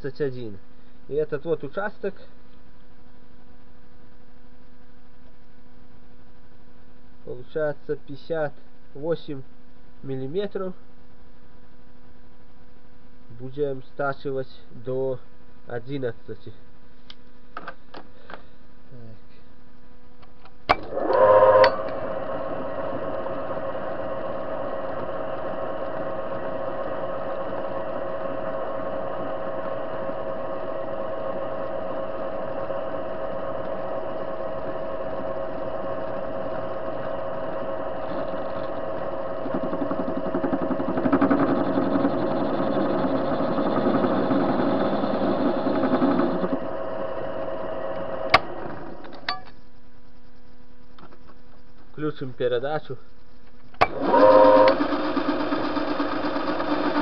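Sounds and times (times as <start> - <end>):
metal lathe humming: 20.8 - 49.3, 53.8 - 57.0.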